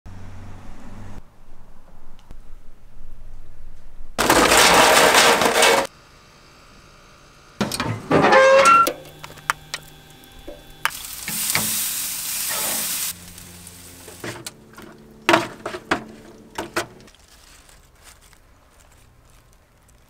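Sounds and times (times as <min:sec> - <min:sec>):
chicken sizzling on grill: 0:08.4 - 0:16.8.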